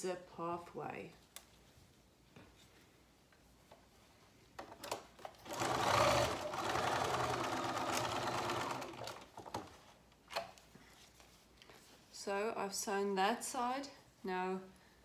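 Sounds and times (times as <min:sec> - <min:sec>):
sewing machine running: 0:05.4 - 0:09.7.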